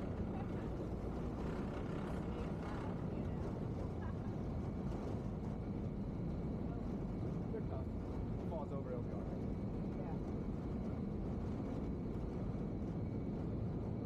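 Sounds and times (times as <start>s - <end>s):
ferry engines rumbling: 0.0s - 7.0s.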